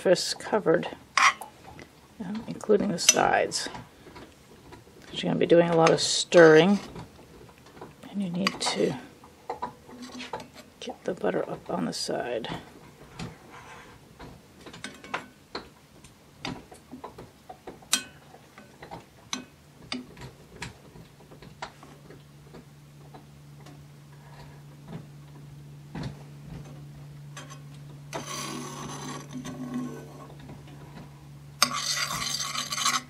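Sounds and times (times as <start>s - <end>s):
metal spoon scraping iron skillet: 27.4s - 30.3s, 31.6s - 33.0s.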